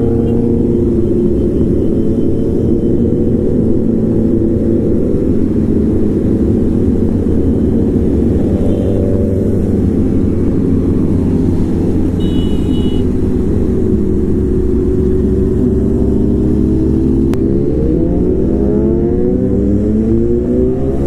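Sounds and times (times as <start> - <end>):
other motorcycles riding close: 0.0 - 21.0
high beep: 12.2 - 13.1.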